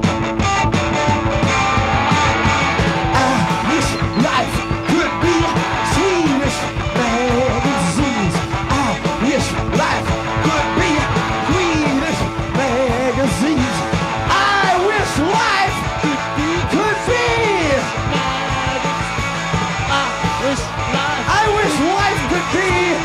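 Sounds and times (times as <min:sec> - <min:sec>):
punk rock band playing: 0:00.0 - 0:23.0.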